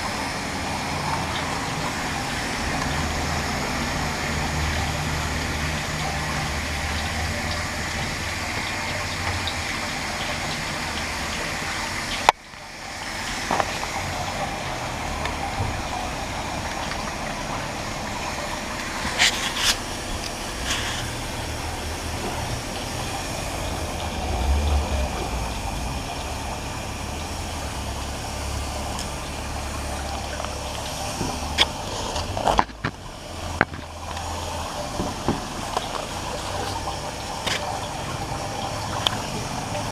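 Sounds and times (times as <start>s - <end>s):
machinery hum and hiss: 0.0s - 39.9s.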